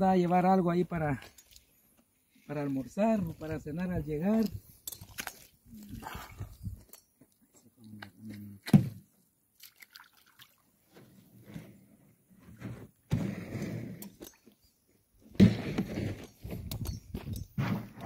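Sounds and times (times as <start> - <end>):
muddy water sloshing and splashing: 4.2 - 7.0, 9.5 - 11.0.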